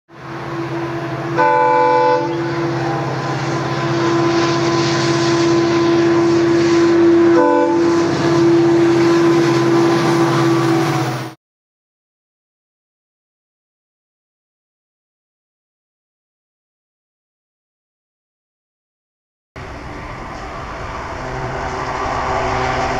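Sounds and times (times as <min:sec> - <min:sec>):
diesel locomotive engine running: 0:00.1 - 0:11.4, 0:19.6 - 0:22.9
multi-tone train horn: 0:00.1 - 0:11.4.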